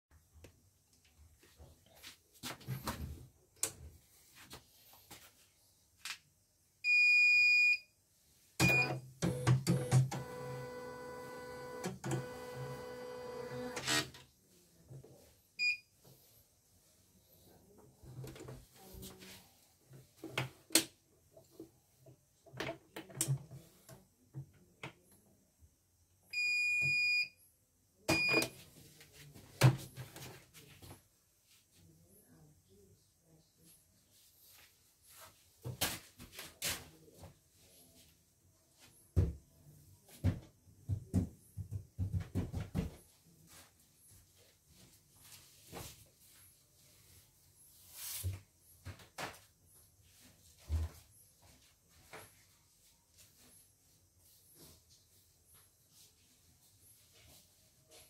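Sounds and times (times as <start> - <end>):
embroidery machine beep: 8.6 - 13.3.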